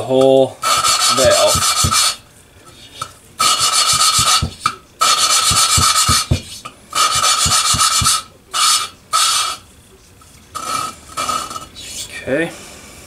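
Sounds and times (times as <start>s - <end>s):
metal grinding on metal: 0.6s - 2.2s.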